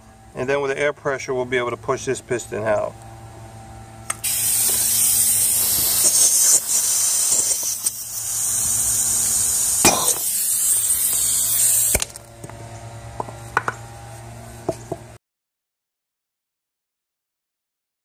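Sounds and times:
compressed air hissing: 4.1s - 12.0s.

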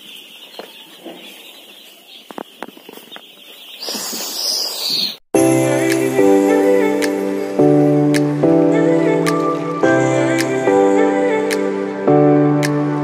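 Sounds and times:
chicks peeping: 0.0s - 5.2s.

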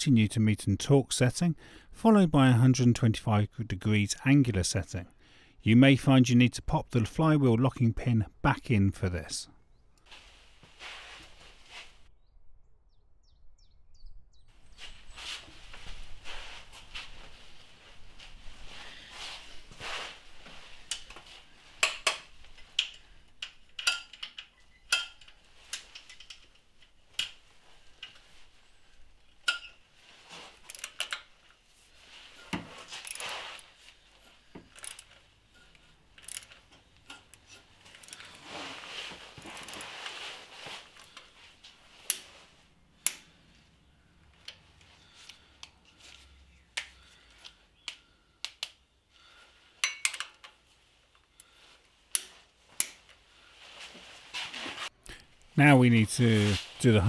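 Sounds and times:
handling rustles: 14.6s - 47.6s, 49.5s - 57.0s
metallic tool clicks: 49.8s - 50.5s.

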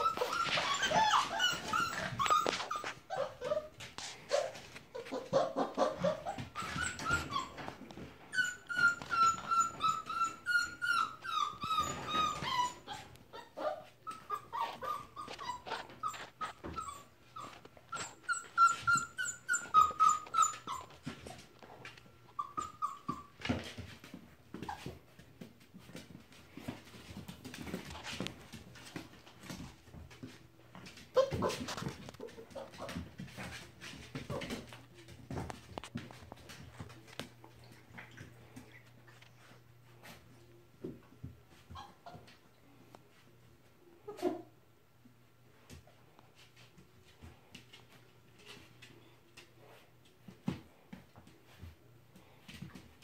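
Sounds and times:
puppies whining and squealing: 0.0s - 23.8s, 41.6s - 42.4s.

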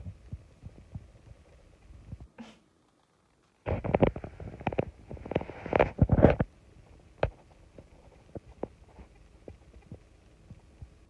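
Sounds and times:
handling noise rustling on microphone: 3.4s - 11.0s.

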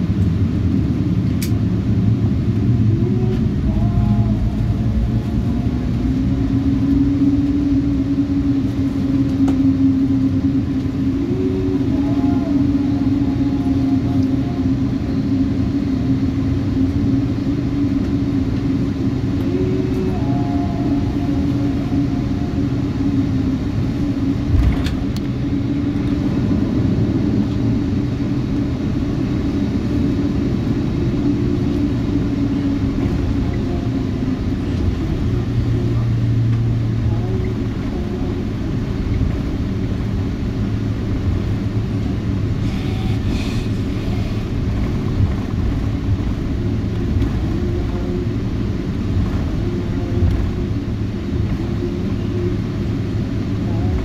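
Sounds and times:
airplane cabin engine rumble: 0.0s - 54.0s.

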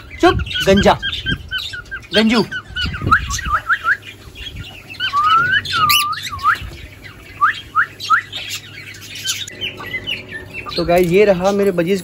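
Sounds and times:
cockatiels chirping: 0.0s - 12.0s.

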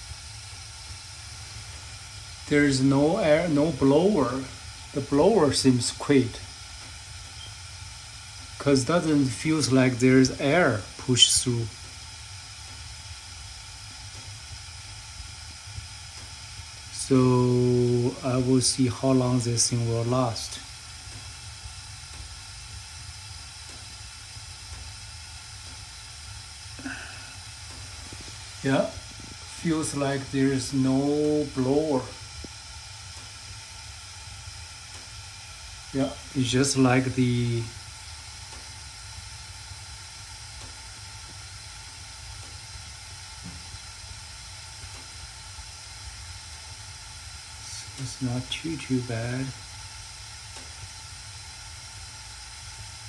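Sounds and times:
gas burners hissing: 0.0s - 53.0s
low furnace rumble: 0.0s - 53.0s
person speaking: 17.0s - 20.6s, 28.2s - 32.2s, 36.0s - 37.7s, 47.7s - 49.6s.

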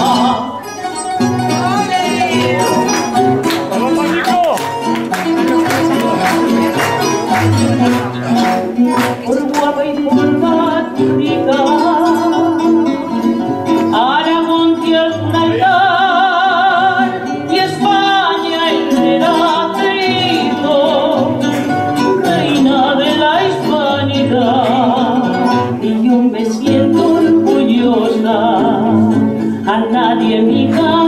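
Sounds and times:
woman singing with vibrato: 0.0s - 3.3s, 9.0s - 21.4s, 22.2s - 31.0s
guitar accompaniment: 0.0s - 31.0s.

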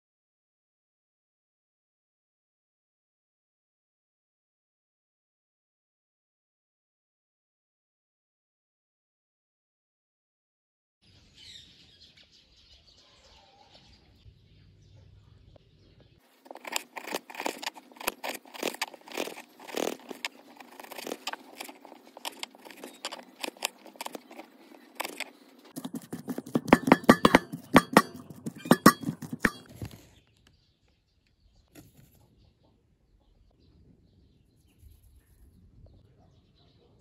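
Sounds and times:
potatoes mashed in bowl: 16.4s - 30.0s
knife chopping on wooden board: 16.5s - 29.8s.

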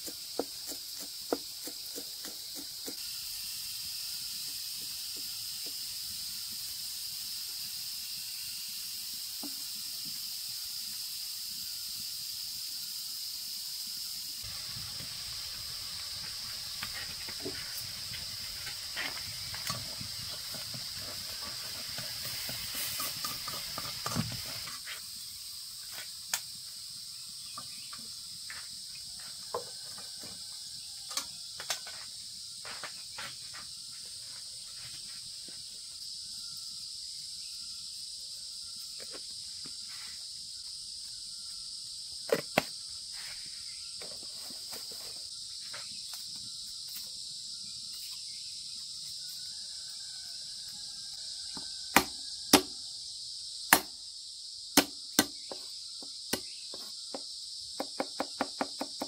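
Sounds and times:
insect drone: 0.0s - 59.0s.

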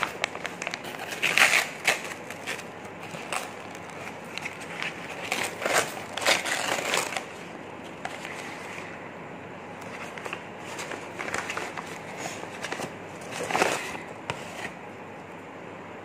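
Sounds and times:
paper ripping and crinkling: 0.0s - 8.9s, 9.8s - 14.8s
paper rustling: 0.0s - 9.0s, 9.8s - 14.8s.

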